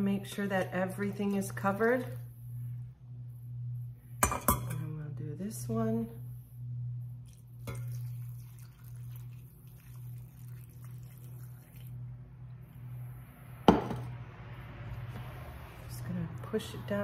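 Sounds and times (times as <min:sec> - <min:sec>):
steady low hum: 0:00.0 - 0:17.0
liquid trickling into jar: 0:07.2 - 0:12.0.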